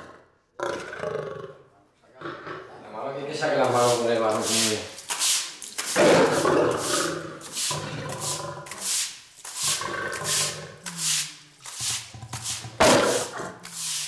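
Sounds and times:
lioness growling: 0:00.0 - 0:03.0, 0:06.0 - 0:08.8, 0:09.6 - 0:11.0, 0:12.8 - 0:13.7
broom scrubbing wet concrete: 0:03.3 - 0:14.0
lioness snarling: 0:06.0 - 0:08.9, 0:09.6 - 0:11.0, 0:12.8 - 0:13.7.

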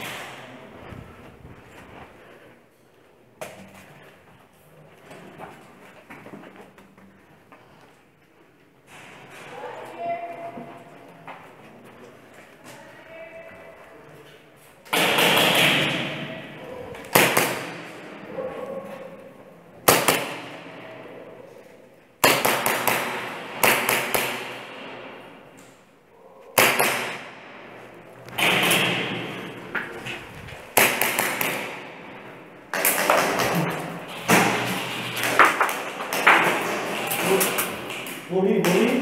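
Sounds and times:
airsoft gun cracks with echo: 0:17.0 - 0:18.1, 0:19.8 - 0:20.7, 0:22.2 - 0:25.2, 0:26.6 - 0:27.7, 0:30.7 - 0:39.0.

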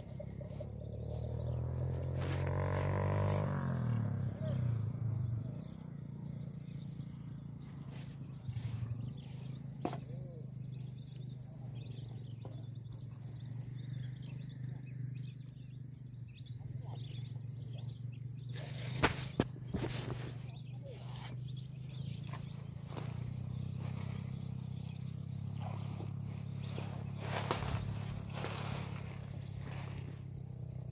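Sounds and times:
grass rustling: 0:00.0 - 0:03.6, 0:07.5 - 0:14.2, 0:18.5 - 0:30.9
steady low hum: 0:00.0 - 0:30.9
faint chirps: 0:03.3 - 0:30.9.

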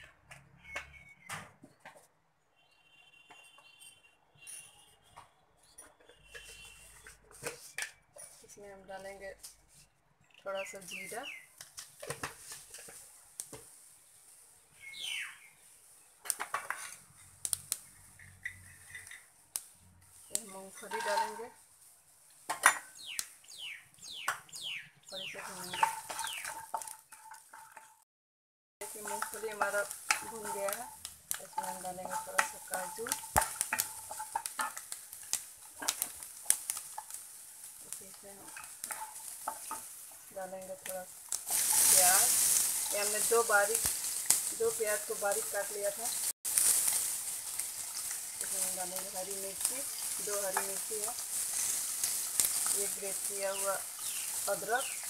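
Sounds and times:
bird chirp: 0:00.5 - 0:01.8, 0:09.8 - 0:11.6, 0:14.7 - 0:16.2, 0:22.8 - 0:26.6, 0:53.4 - 0:55.0
spoon and nuts scraping pan: 0:05.8 - 0:08.7, 0:11.8 - 0:13.8, 0:16.0 - 0:17.4, 0:20.2 - 0:21.6, 0:25.2 - 0:28.0, 0:28.8 - 0:55.0
oil sizzling: 0:10.6 - 0:28.0, 0:28.8 - 0:55.0
steel bowls and utensils clinking: 0:20.4 - 0:21.6, 0:25.3 - 0:28.0, 0:28.8 - 0:35.0, 0:37.9 - 0:45.9, 0:46.8 - 0:55.0.

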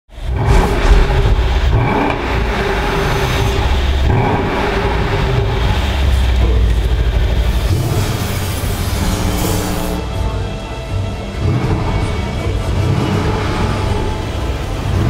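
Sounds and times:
low exhaust rumble: 0:00.1 - 0:15.0.

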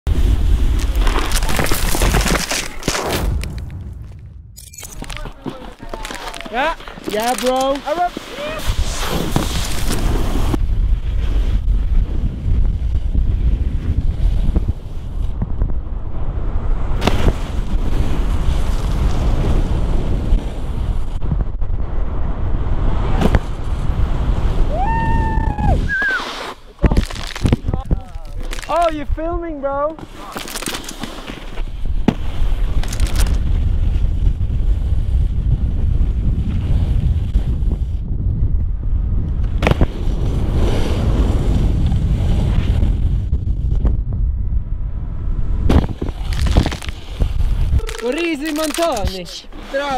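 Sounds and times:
snowboard carving on snow: 0:00.1 - 0:03.5, 0:05.1 - 0:38.0, 0:39.3 - 0:43.9, 0:45.5 - 0:49.9
wind buffeting microphone: 0:00.1 - 0:26.0, 0:31.6 - 0:49.9
snowboard hissing on snow: 0:07.8 - 0:10.6, 0:25.6 - 0:26.8
snowboard landing smack: 0:08.2 - 0:10.7, 0:17.0 - 0:19.6, 0:23.1 - 0:23.7, 0:30.9 - 0:32.8, 0:39.5 - 0:43.0, 0:45.6 - 0:47.7.

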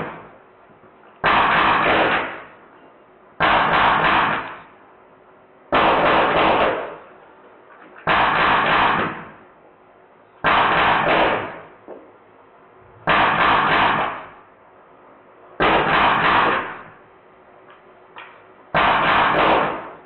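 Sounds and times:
air gun full-auto bursts: 0:01.2 - 0:02.5, 0:03.4 - 0:04.6, 0:05.8 - 0:07.0, 0:08.0 - 0:09.3, 0:10.4 - 0:11.6, 0:13.0 - 0:14.4, 0:15.6 - 0:16.9, 0:18.8 - 0:20.0.

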